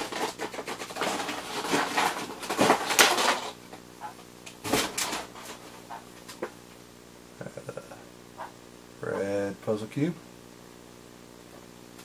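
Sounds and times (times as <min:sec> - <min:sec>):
plastic packaging crinkling: 0:00.0 - 0:03.9.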